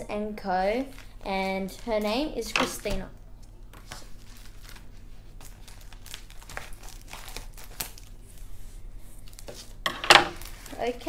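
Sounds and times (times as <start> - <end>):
plastic mailer crinkling: 3.8 - 8.2.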